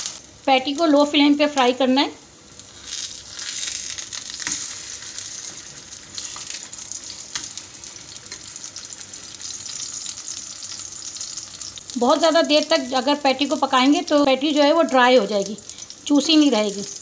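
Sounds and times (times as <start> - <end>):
patties sizzling in oil: 0.0 - 17.0.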